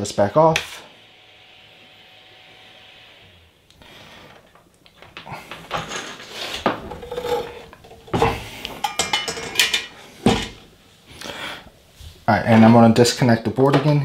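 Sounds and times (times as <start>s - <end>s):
rustling and clicking of wiring: 4.3s - 10.6s.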